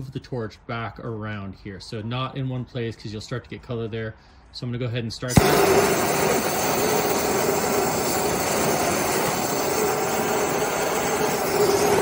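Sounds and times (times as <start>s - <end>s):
torch flame hissing: 5.3s - 12.0s.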